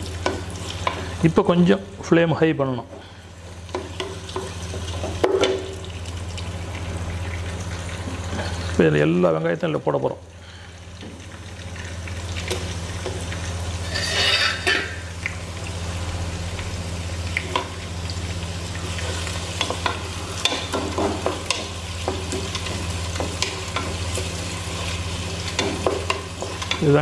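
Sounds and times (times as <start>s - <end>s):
shallots sizzling in hot oil: 0.0s - 27.0s
wooden spatula scraping a pot: 13.8s - 14.8s.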